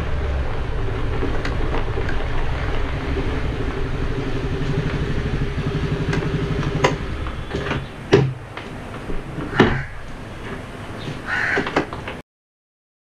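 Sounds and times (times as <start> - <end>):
sharp knocks and clunks: 6.1 - 12.2.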